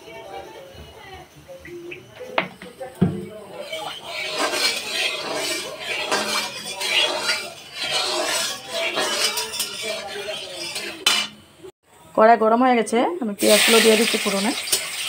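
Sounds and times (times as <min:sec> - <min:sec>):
indistinct voices: 0:00.0 - 0:11.7
metal spatula scraping a wok: 0:03.3 - 0:11.5, 0:13.4 - 0:15.0.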